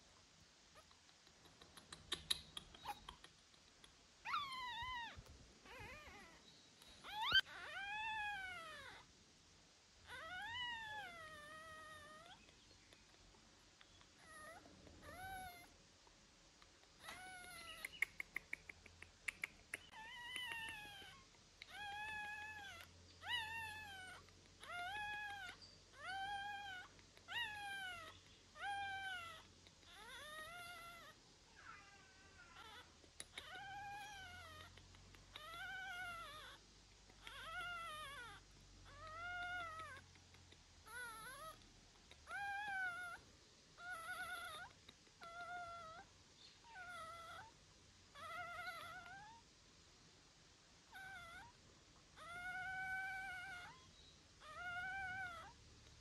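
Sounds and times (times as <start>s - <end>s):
quick clicks: 1.0s - 4.0s
puppy whining: 1.6s - 3.4s, 4.2s - 9.1s, 10.0s - 13.2s, 13.8s - 15.8s, 16.8s - 49.5s, 50.8s - 56.0s.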